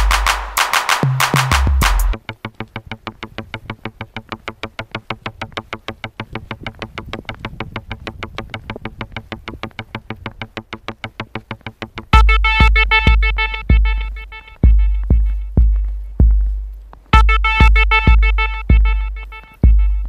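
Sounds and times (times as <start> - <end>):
deep bass with held chords: 0.0 - 2.2, 11.2 - 20.0
fast synthesizer notes: 0.0 - 20.0.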